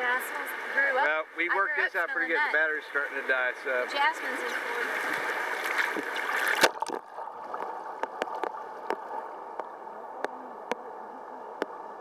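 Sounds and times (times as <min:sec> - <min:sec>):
river water rushing: 0:03.6 - 0:09.3.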